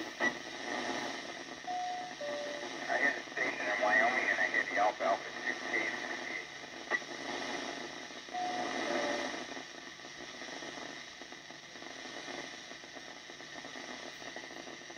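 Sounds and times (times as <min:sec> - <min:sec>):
radio receiver hiss and static: 0:00.0 - 0:14.9
brief low beep: 0:01.7 - 0:02.6
faint steady high tone: 0:01.7 - 0:02.7.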